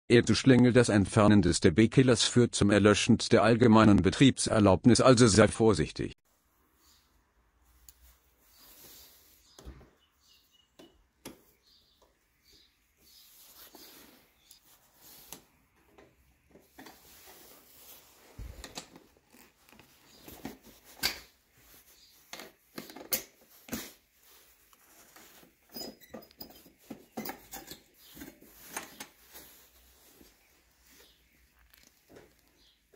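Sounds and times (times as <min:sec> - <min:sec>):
metal tools clicking and scraping: 0:25.7 - 0:29.2.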